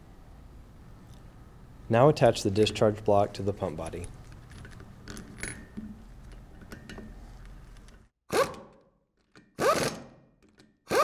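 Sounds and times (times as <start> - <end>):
ratchet zipping: 9.6 - 10.1.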